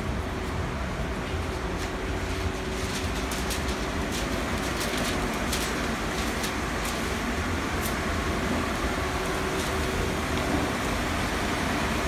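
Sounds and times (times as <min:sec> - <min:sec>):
light ticks and rustles: 0:01.2 - 0:08.3.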